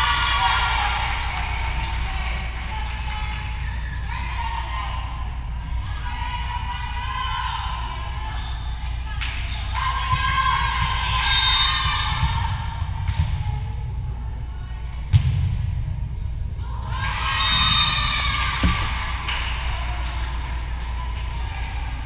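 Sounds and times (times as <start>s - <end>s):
girls shouting and cheering: 0.0s - 8.3s, 9.7s - 12.7s, 16.6s - 22.0s.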